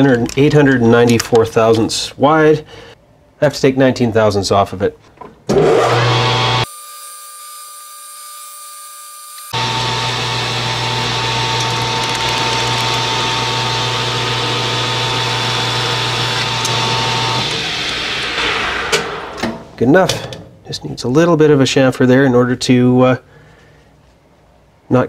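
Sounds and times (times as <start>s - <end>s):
metal lathe cutting steel: 5.6s - 7.5s, 9.3s - 19.4s
motor hum: 9.2s - 19.8s.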